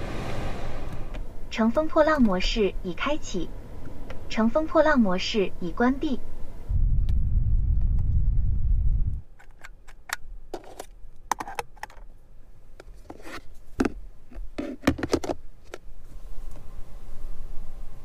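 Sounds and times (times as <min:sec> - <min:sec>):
low rumble: 0:00.0 - 0:01.6, 0:06.2 - 0:09.3
plastic clicks and knocks: 0:14.6 - 0:15.8.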